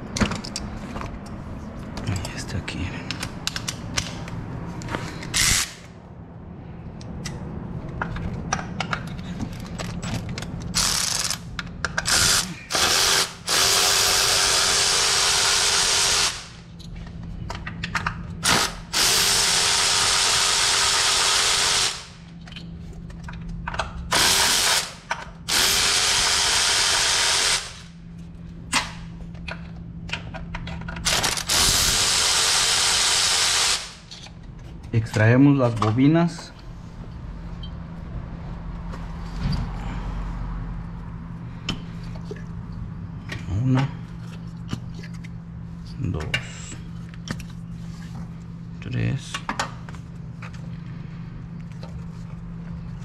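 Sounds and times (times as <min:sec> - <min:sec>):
electric ratchet spinning bolts: 0:05.3 - 0:05.9, 0:10.7 - 0:16.6, 0:18.4 - 0:22.2, 0:24.1 - 0:27.9, 0:31.0 - 0:34.2.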